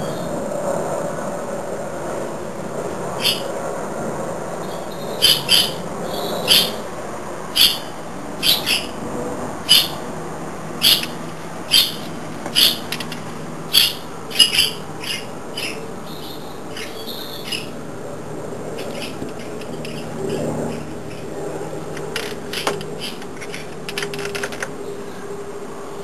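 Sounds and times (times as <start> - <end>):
bird chirping: 3.2 - 3.5, 4.6 - 6.8, 7.6 - 9.0, 9.7 - 10.0, 10.8 - 17.8, 18.8 - 21.3.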